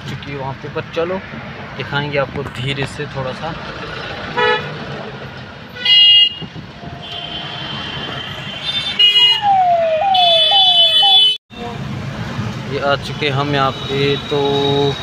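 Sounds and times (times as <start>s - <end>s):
vehicle horns honking: 4.4s - 4.8s, 5.7s - 11.4s
siren-like falling tone: 9.3s - 11.2s.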